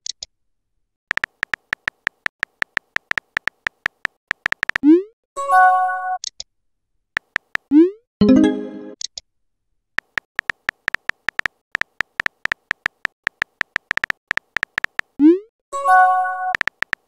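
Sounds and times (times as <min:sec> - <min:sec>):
keyboard tap clicks: 0:01.1 - 0:04.8, 0:07.2 - 0:07.7, 0:10.0 - 0:15.1, 0:16.6 - 0:17.0
message arrival chime: 0:08.2 - 0:09.0.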